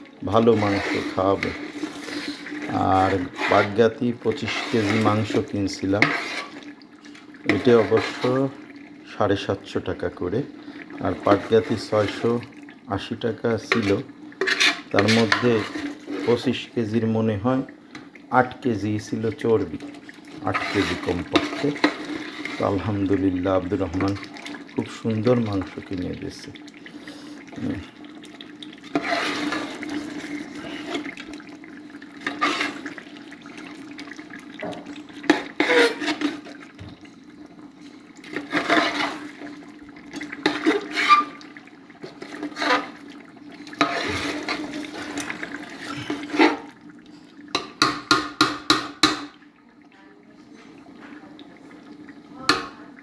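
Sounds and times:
spoon stirring thick curry: 0.3s - 9.1s, 13.6s - 17.0s, 19.0s - 27.6s, 28.2s - 36.7s, 38.0s - 49.2s.

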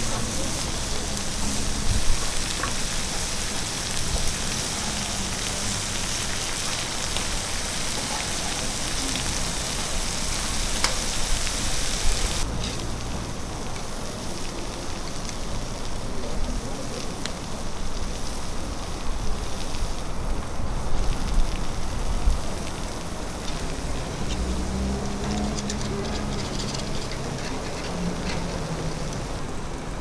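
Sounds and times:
ribs sizzling on a hot griddle: 0.0s - 29.4s
meat sizzling on a grill grate: 0.0s - 30.0s.

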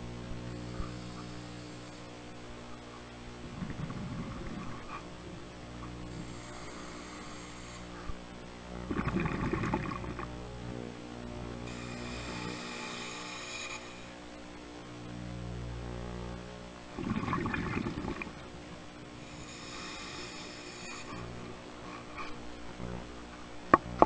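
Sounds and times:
bubbling exhaust bubbles: 3.4s - 4.9s, 8.8s - 10.4s, 16.9s - 18.4s
regulator inhalation hiss: 6.1s - 8.2s, 11.6s - 14.3s, 19.1s - 22.5s.

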